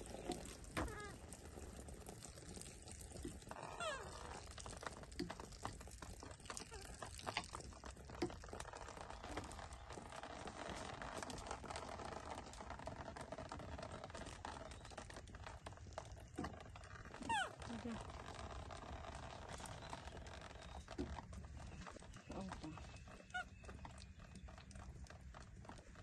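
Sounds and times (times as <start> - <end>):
bath water trickling and dripping: 0.0 - 26.0.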